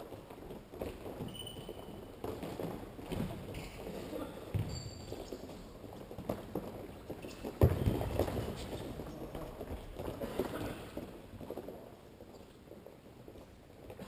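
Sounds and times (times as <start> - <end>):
footsteps and scuffs on court: 0.0 - 14.0
high shoe squeak: 1.2 - 2.1, 3.5 - 5.7, 7.1 - 7.9.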